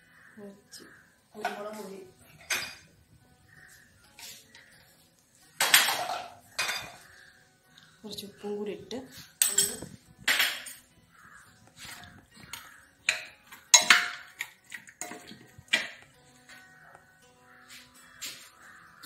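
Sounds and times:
distant crows cawing: 0.0s - 1.9s, 2.8s - 9.4s, 10.4s - 14.4s, 15.0s - 19.0s
knocks and scrapes on metal pot: 11.8s - 16.1s.

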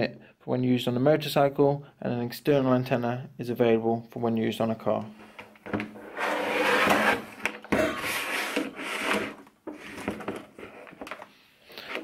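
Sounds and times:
plastic case scraping on table: 5.2s - 12.0s.

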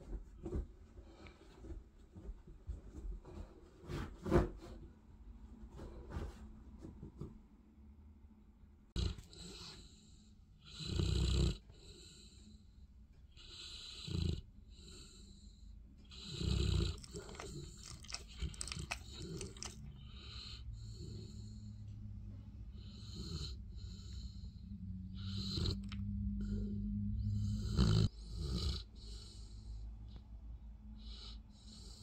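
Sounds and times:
dog snoring: 9.0s - 12.4s, 13.3s - 21.7s, 22.7s - 29.8s
dog lip smacking: 16.8s - 20.0s.

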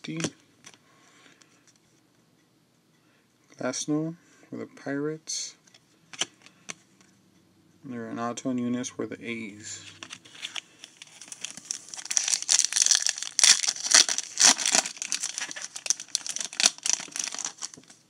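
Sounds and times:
foil wrapper tearing and crinkling: 10.3s - 18.0s.

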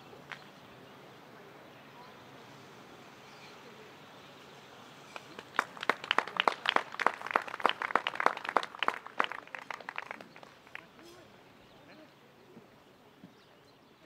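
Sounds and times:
crowd applauding: 5.2s - 11.1s.

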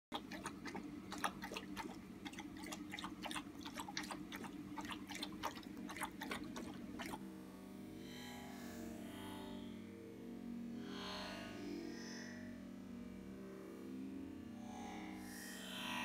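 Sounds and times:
puppy mouth clicks and smacks: 0.1s - 7.2s.

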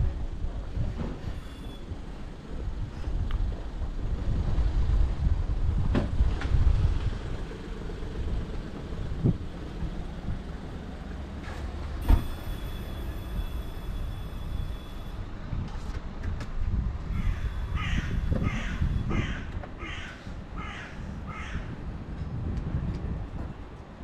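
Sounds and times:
low outdoor rumble: 0.0s - 24.0s
crow cawing: 17.2s - 21.8s.

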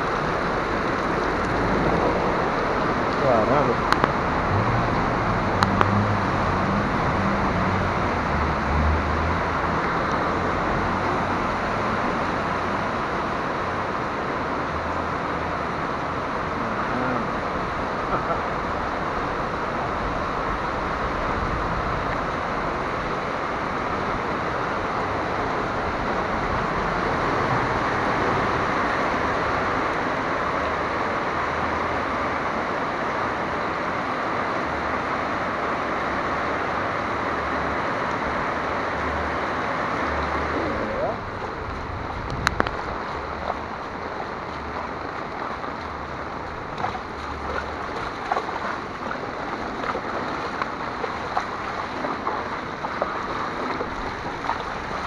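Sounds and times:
heavy rain pouring: 0.0s - 55.0s
car engine rumble: 35.8s - 55.0s
water spraying from tyres: 40.1s - 55.0s.

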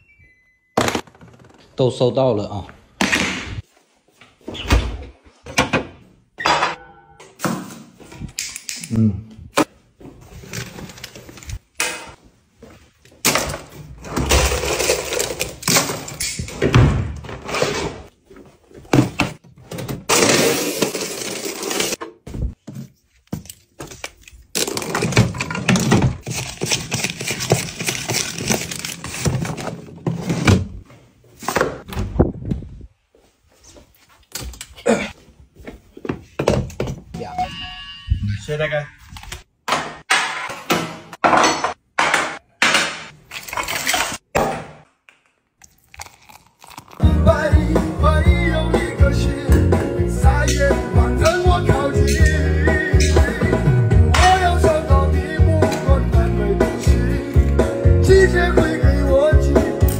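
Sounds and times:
rummaging through plastic bin: 24.6s - 30.8s.

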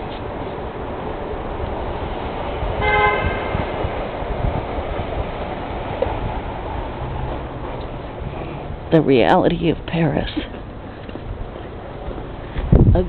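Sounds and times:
street traffic noise: 0.0s - 13.0s
vehicle horn toot: 2.8s - 3.7s.

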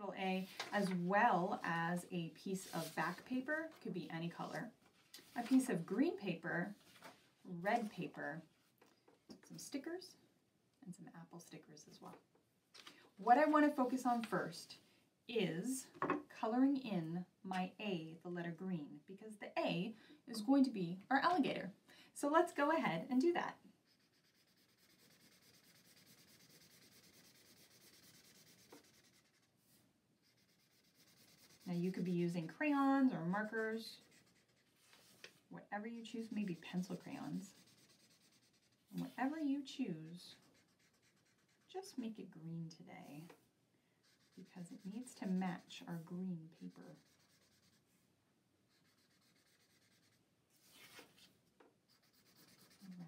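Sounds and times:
marker rubbing on paper: 23.8s - 32.6s, 33.4s - 35.2s, 35.8s - 39.5s, 40.1s - 42.0s, 44.0s - 48.0s, 48.7s - 51.3s, 51.9s - 53.0s.

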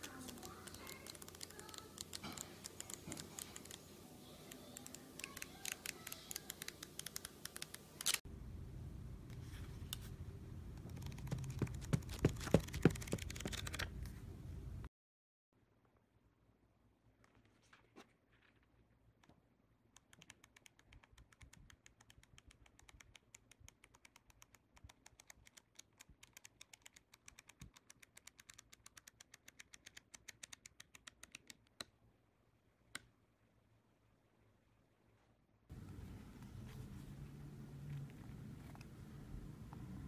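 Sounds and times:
flipbook pages ticking: 0.0s - 8.2s, 10.8s - 13.9s, 20.0s - 31.9s
paper handling sounds: 0.0s - 8.2s, 10.8s - 14.2s
sharp clicks: 4.5s - 8.2s.

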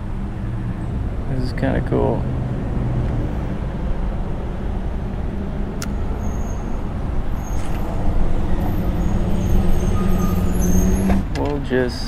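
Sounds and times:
road traffic rumble: 0.0s - 12.0s
sharp click: 5.8s - 6.0s.

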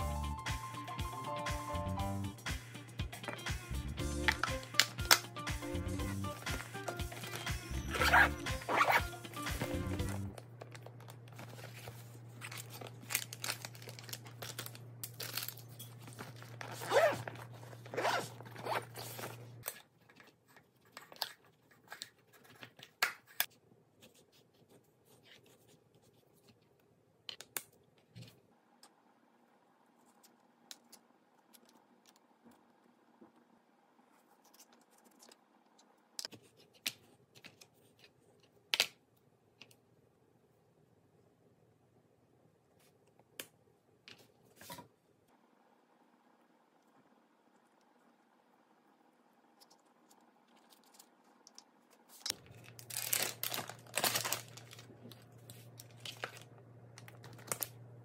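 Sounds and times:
low steady hum: 1.7s - 58.0s
fabric bag handling: 6.4s - 10.1s, 15.3s - 19.6s, 52.3s - 54.9s
zipper opening and closing: 7.2s - 10.2s, 16.6s - 19.5s.

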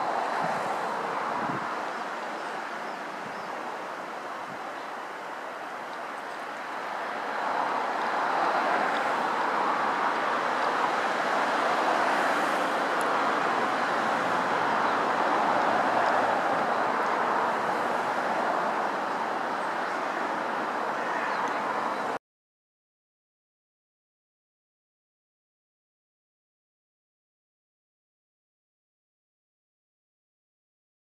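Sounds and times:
river water rushing: 0.0s - 22.2s.

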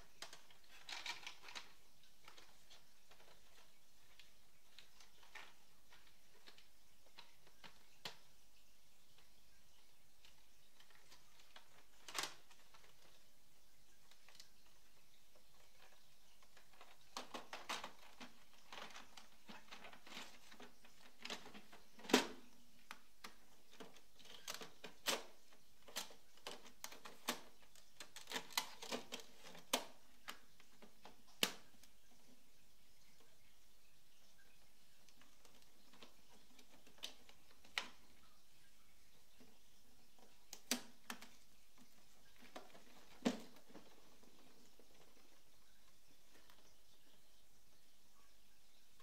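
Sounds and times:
plastic clicks and knocks: 15.4s - 31.9s, 40.2s - 45.3s.

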